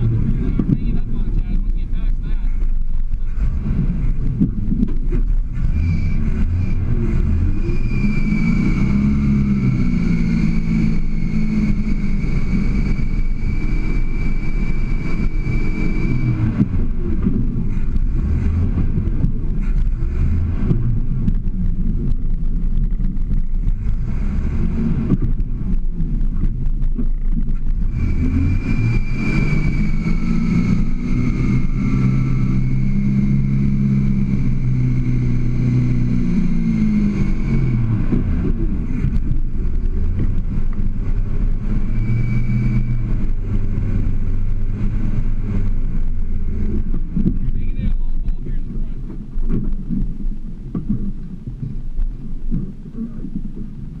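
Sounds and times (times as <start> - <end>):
engine revving under load: 0.0 - 50.0
high thin whine: 0.0 - 51.0.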